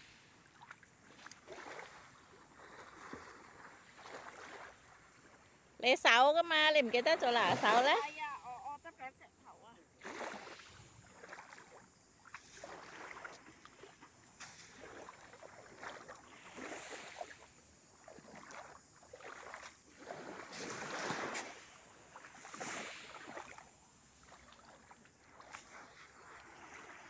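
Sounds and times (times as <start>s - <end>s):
small waves lapping on shore: 0.0s - 27.0s.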